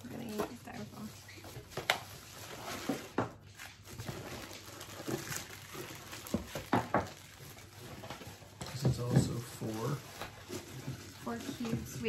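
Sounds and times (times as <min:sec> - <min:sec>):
plastic wrap and styrofoam crinkling: 0:00.0 - 0:12.0.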